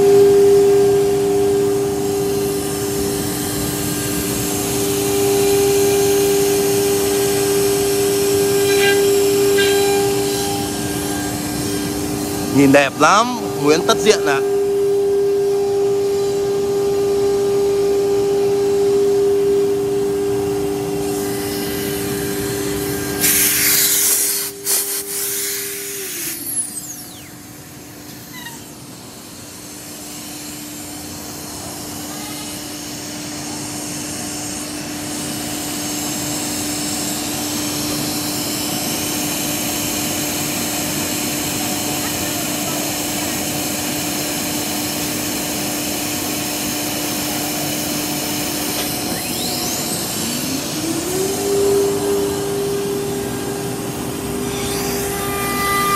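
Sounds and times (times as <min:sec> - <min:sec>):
machine hum: 0:00.0 - 0:55.9
router spindle whine: 0:00.0 - 0:55.9
compressed air hiss: 0:23.2 - 0:27.0.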